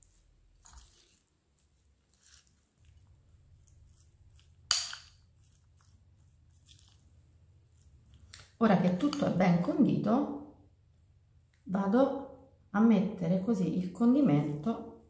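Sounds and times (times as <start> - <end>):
spoon stirring wet filling: 0.0 - 9.4.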